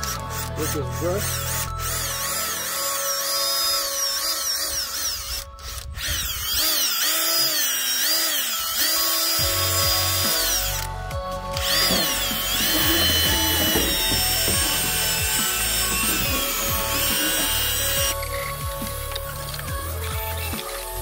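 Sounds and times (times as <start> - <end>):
cordless drill scrub brush whine: 0.0 - 21.0.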